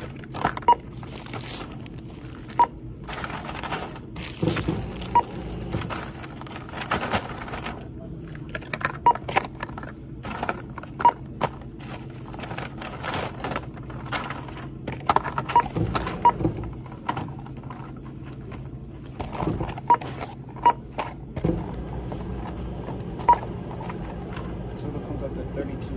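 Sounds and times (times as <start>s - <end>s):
barcode scanner beeps: 0.6s - 0.9s, 2.6s - 2.8s, 5.0s - 5.5s, 15.5s - 16.4s, 23.2s - 23.5s.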